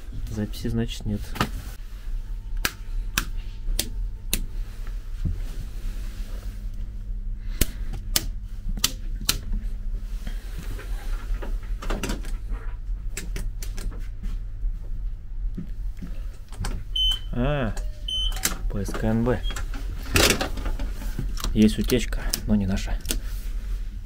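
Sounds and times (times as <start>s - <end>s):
low hum in railway carriage: 9.5s - 24.0s.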